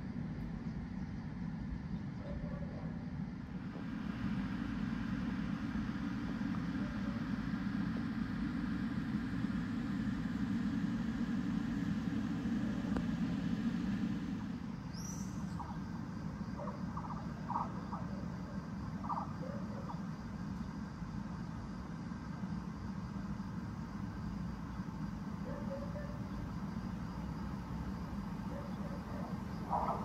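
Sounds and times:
vehicle engine rumbling: 0:03.2 - 0:20.0.

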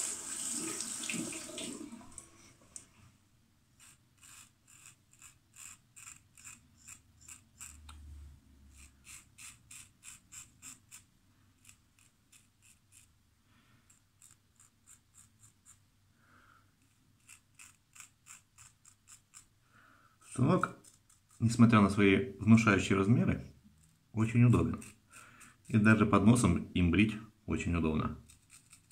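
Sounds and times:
razor scraping through stubble: 0:03.8 - 0:08.0, 0:08.7 - 0:13.2, 0:13.9 - 0:15.8, 0:16.8 - 0:19.5, 0:20.2 - 0:22.0, 0:23.7 - 0:26.4, 0:28.1 - 0:28.9.

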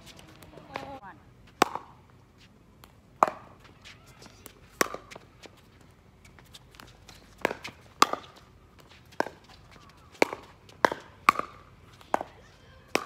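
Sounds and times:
pickleball paddle hits and bounces: 0:00.0 - 0:01.0, 0:01.6 - 0:02.0, 0:02.8 - 0:03.5, 0:04.8 - 0:05.2, 0:06.8 - 0:13.0.

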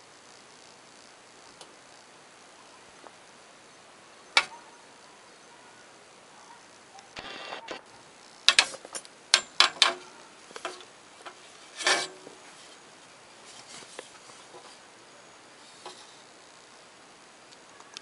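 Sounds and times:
faint ticks: 0:01.4 - 0:01.8
sharp clicks and knocks on metal: 0:08.5 - 0:10.0
metal scrape: 0:11.5 - 0:12.8.

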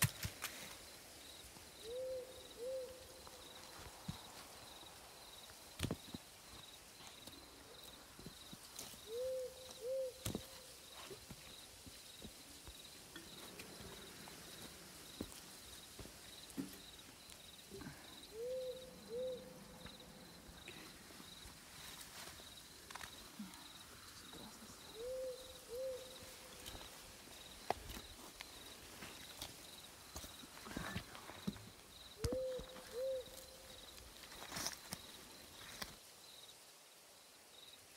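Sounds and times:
insects chirping: 0:00.1 - 0:37.9
owl hooting: 0:01.8 - 0:03.4, 0:09.0 - 0:10.6, 0:17.8 - 0:19.8, 0:24.9 - 0:26.7, 0:32.2 - 0:33.7.

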